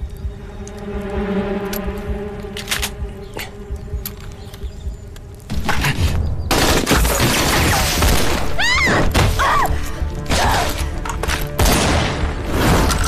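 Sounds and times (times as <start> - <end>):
dramatic background music: 0.0 - 13.0.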